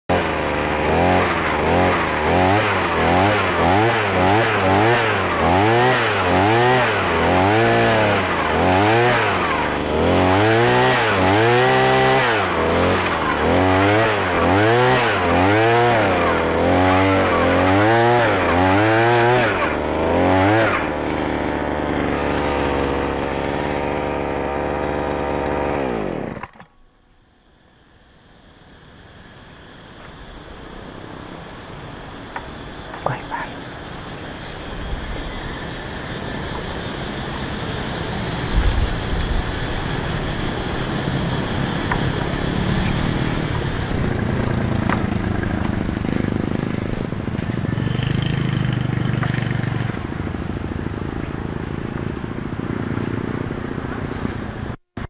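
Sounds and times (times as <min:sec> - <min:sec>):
earth auger engine drilling into soil: 0:00.1 - 0:27.3.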